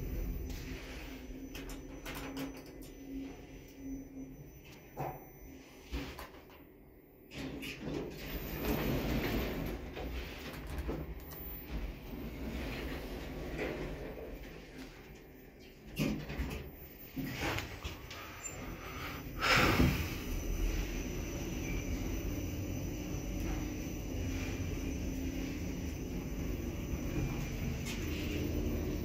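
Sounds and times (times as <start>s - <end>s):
elevator door operator humming: 0.0s - 29.0s
elevator doors sliding: 7.3s - 29.0s.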